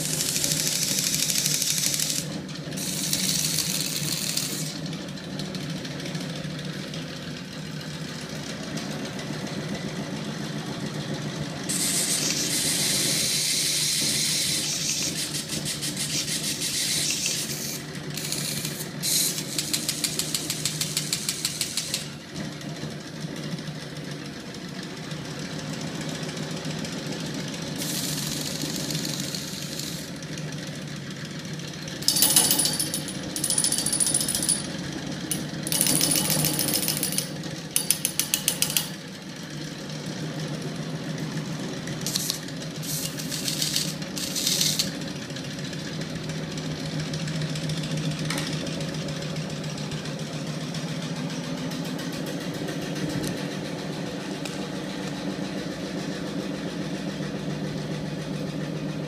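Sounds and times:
electric motor humming: 0.0s - 4.8s, 27.8s - 30.1s, 42.1s - 44.9s
screwdriver scraping spinning drum: 0.0s - 4.9s, 11.7s - 22.2s, 27.7s - 30.2s, 31.9s - 39.1s, 42.0s - 45.1s.

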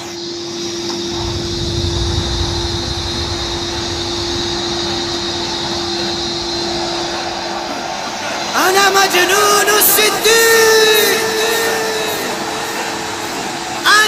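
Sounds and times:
vacuum cleaner motor whine: 0.0s - 14.0s
low rumble: 1.0s - 8.4s.

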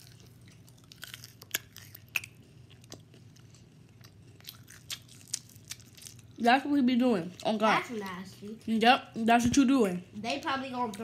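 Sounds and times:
person chewing: 0.0s - 6.4s.

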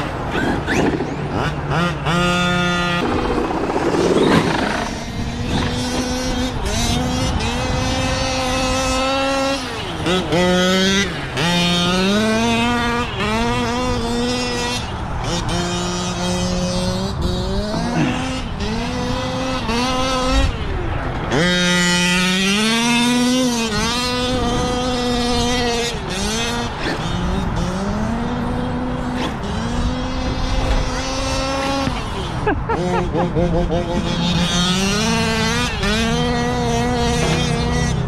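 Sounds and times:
rc car motor whining: 0.0s - 17.6s.

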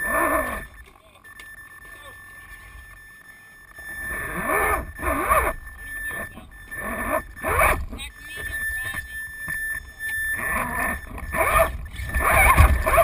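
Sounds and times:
faint steady high whine: 0.0s - 13.0s
men talking: 6.1s - 6.7s.

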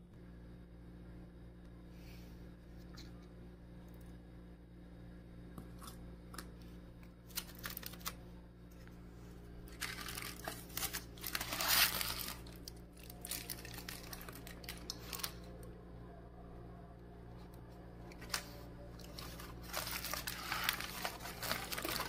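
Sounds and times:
steady low hum: 0.0s - 22.0s
aluminium foil crinkling: 7.2s - 8.2s, 9.6s - 15.7s, 18.0s - 22.0s.

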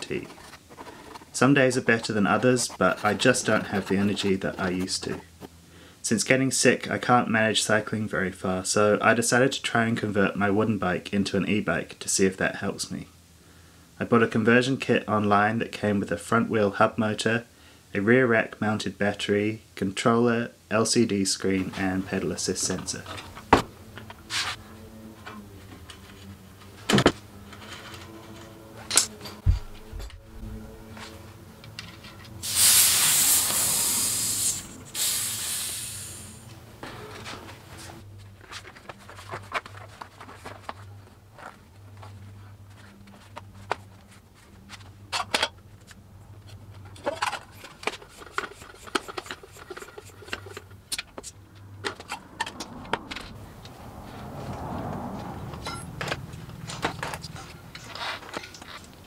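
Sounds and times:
low steady hum: 0.0s - 32.5s
floor pump inflating tyre: 32.4s - 37.2s, 47.8s - 50.7s.

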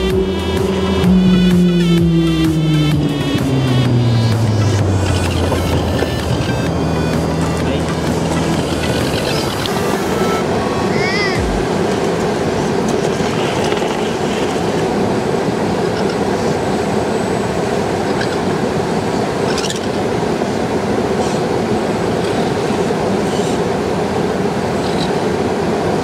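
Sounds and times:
flowing river water: 0.1s - 26.0s.

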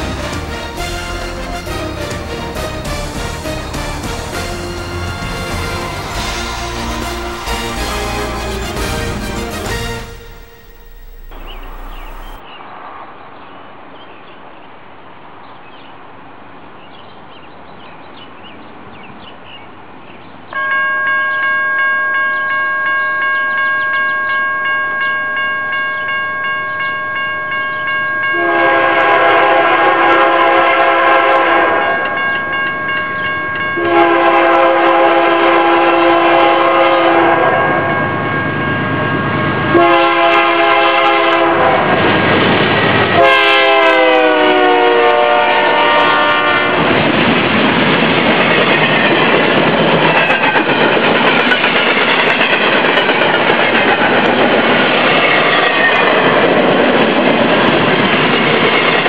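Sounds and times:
crossing warning bell ringing: 0.0s - 12.4s, 20.5s - 30.2s, 30.9s - 42.2s, 42.8s - 46.6s
locomotive horn blasts: 0.0s - 12.4s, 28.3s - 32.2s, 33.8s - 38.0s, 39.7s - 42.0s, 43.1s - 46.9s.

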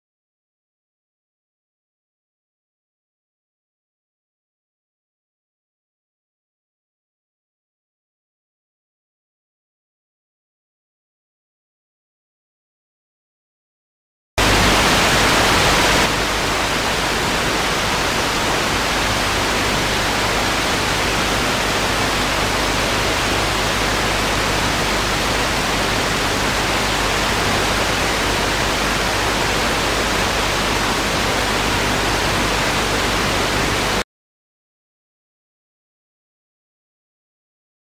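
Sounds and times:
television static hiss: 14.4s - 34.0s.

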